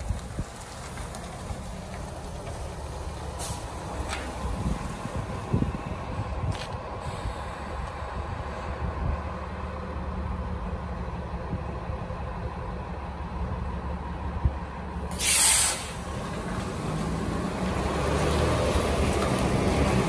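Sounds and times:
bus engine idling: 0.0 - 20.0
air brake hiss: 3.4 - 3.7, 7.0 - 7.7, 15.1 - 16.1.

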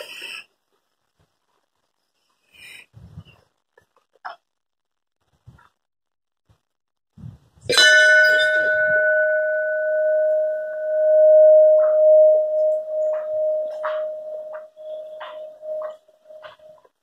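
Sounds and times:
brass bell ringing: 7.7 - 16.8.

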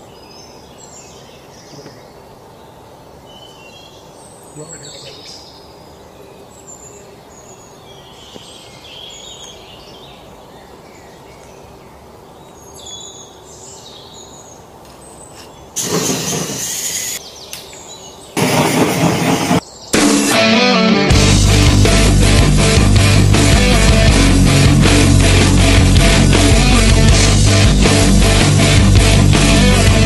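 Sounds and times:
birds chirping: 0.0 - 30.0
loud rock music: 18.4 - 30.0.

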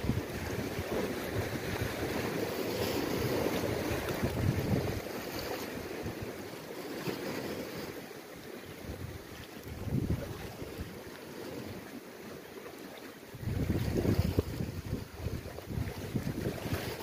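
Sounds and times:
wind buffeting microphone: 0.0 - 6.3, 8.8 - 11.0, 13.3 - 17.0
sea waves washing: 0.0 - 17.0.

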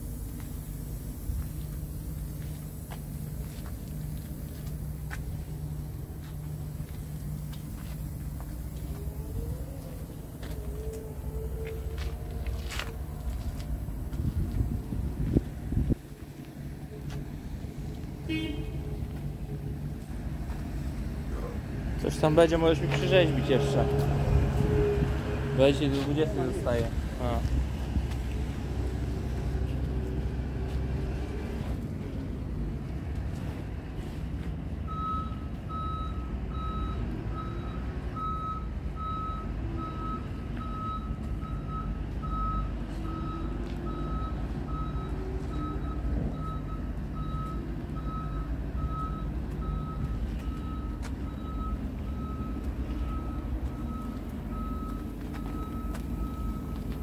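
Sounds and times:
diesel truck engine idling: 0.0 - 57.0
reversing alarm beeping: 34.9 - 57.0.

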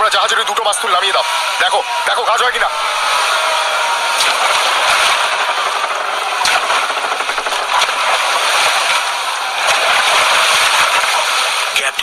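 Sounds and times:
crackling and rattling: 4.2 - 11.6.

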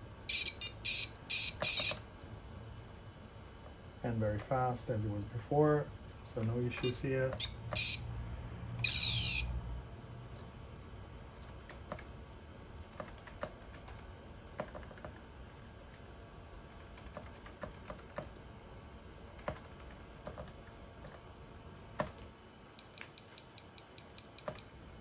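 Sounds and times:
computer keyboard typing: 0.3 - 2.0, 6.7 - 8.0, 11.3 - 12.2, 12.9 - 18.5, 19.3 - 21.2, 21.9 - 24.8.

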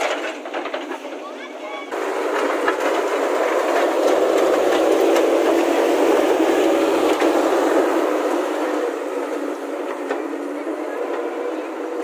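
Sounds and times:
rubble crunching and clattering: 0.0 - 7.4
diesel engine running: 0.0 - 12.0
steel bucket scraping road: 0.0 - 12.0.

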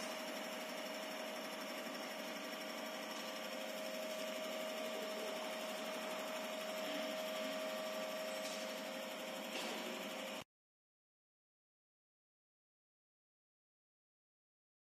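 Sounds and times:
machinery humming with tone: 0.0 - 10.5.

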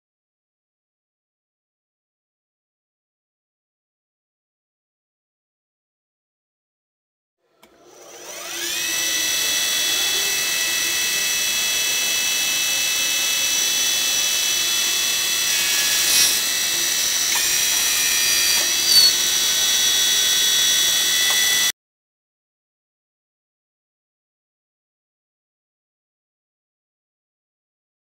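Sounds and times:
high-pitched lathe whine: 7.6 - 21.7.

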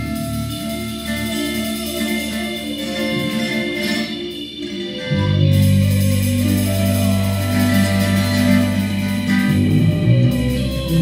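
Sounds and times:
reggae band playing: 0.0 - 11.0
deep bass note: 5.0 - 11.0.

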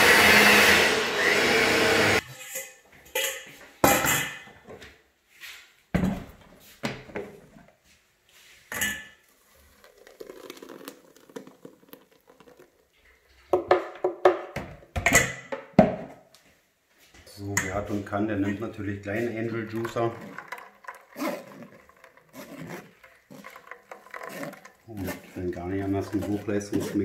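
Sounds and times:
thick juice pouring through sieve: 9.2 - 13.5, 17.8 - 27.0.

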